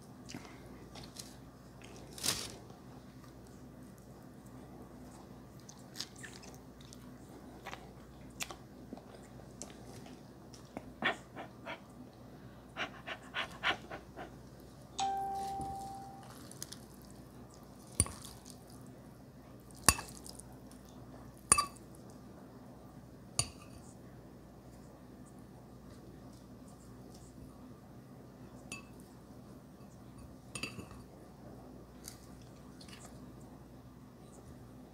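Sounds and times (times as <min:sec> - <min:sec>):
glass bowl ringing: 0:15.0 - 0:16.4.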